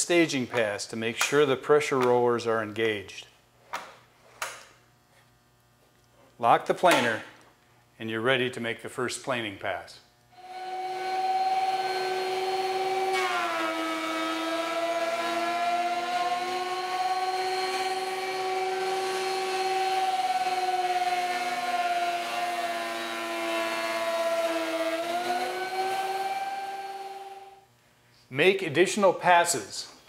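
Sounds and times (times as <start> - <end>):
thickness planer whining: 10.4 - 27.6.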